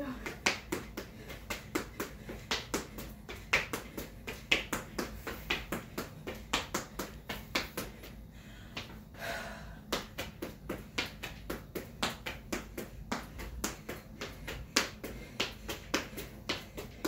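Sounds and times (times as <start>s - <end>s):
feet tapping the floor quickly: 0.0s - 9.0s, 9.9s - 17.0s.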